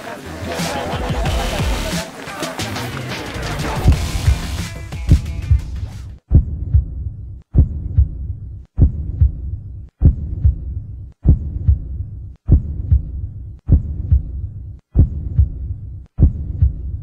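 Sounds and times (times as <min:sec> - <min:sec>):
heartbeat double thump: 0:03.7 - 0:17.0.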